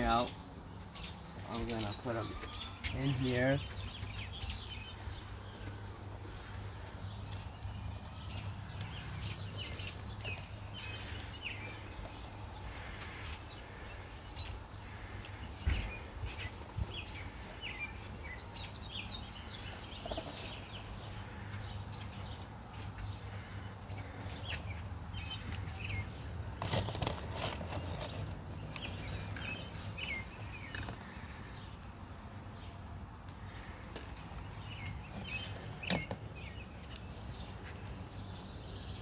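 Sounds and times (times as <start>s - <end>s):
small birds chirping: 0.0s - 39.0s
paper tubes rustling and knocking: 26.5s - 29.4s.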